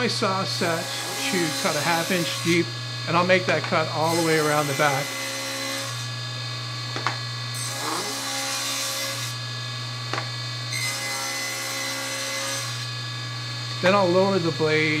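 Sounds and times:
saw blade cutting wood: 0.0s - 6.2s, 7.0s - 9.5s, 10.2s - 13.0s
table saw running: 0.0s - 15.0s.

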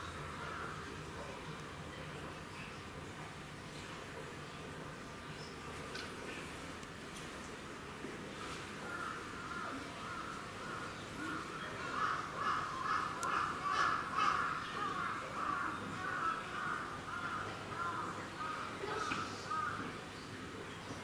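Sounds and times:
birds calling harshly: 8.9s - 20.0s.

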